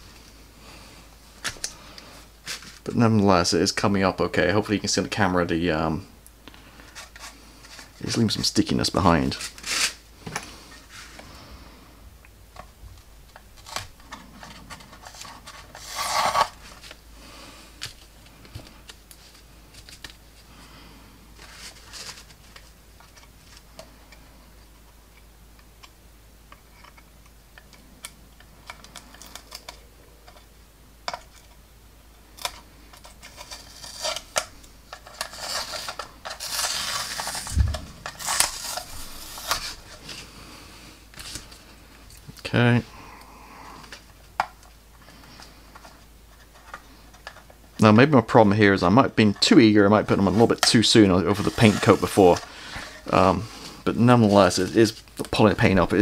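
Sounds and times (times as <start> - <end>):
scratchy rasp: 14.5 - 16.6, 35.0 - 40.0.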